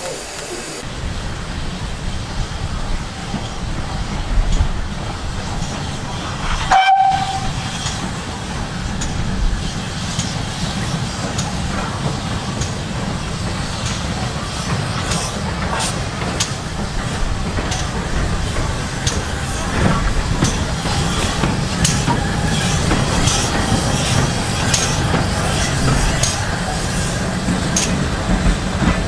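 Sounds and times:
steam train rumbling: 0.0 - 29.0
steam whistle toot: 6.5 - 7.8.

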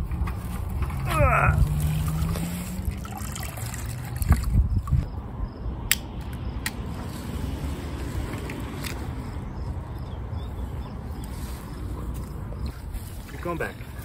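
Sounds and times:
liquid draining into bucket: 2.1 - 5.0
sharp clicks of hose: 5.9 - 6.8.

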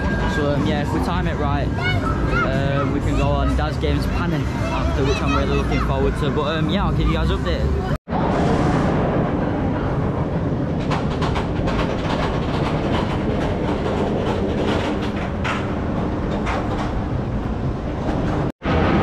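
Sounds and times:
roller coaster rumbling on track: 0.0 - 19.0
wheels clattering over track joints: 10.6 - 18.5.

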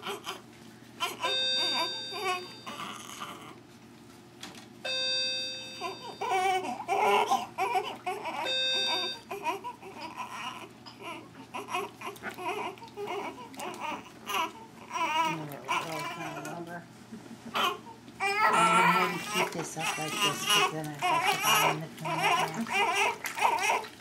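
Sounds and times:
baby crying: 5.8 - 16.4, 17.6 - 23.9
electronic beep: 8.5 - 9.2.

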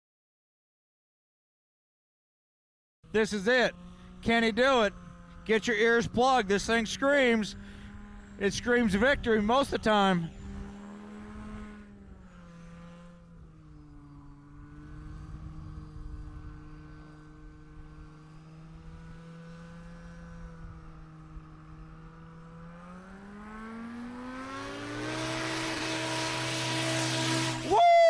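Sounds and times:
propeller turning: 3.1 - 21.4, 22.0 - 28.0
plane engine running: 3.1 - 28.0.

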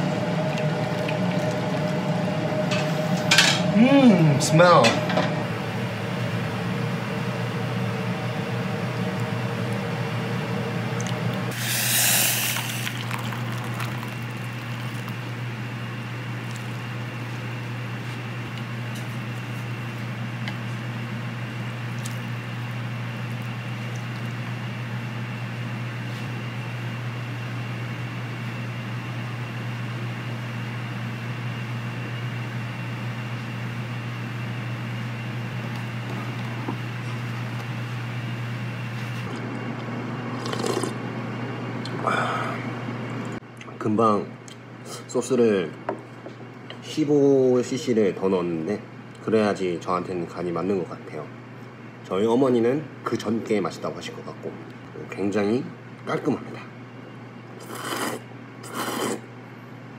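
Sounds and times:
low machine hum: 0.0 - 59.9
liquid pouring into bowl: 11.0 - 15.4.

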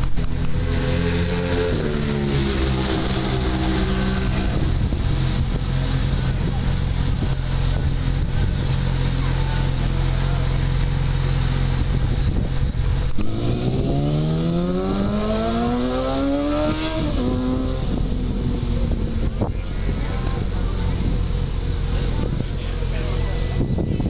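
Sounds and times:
motorcycle pulling away: 0.1 - 19.6
motorcycle engine idling: 17.1 - 24.0.

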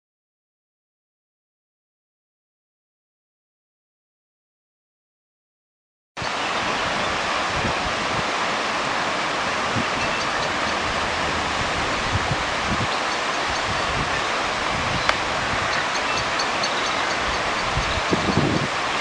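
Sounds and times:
steady rushing noise outdoors: 6.2 - 19.0.

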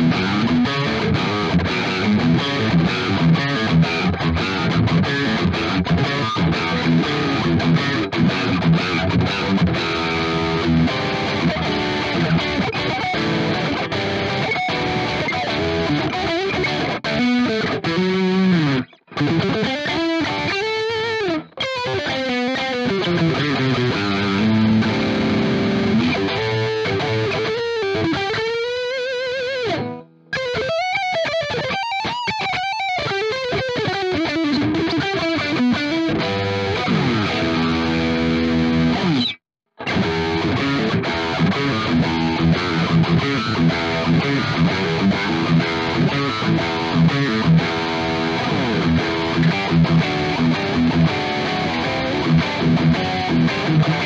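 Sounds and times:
distorted electric guitar: 0.0 - 54.0.

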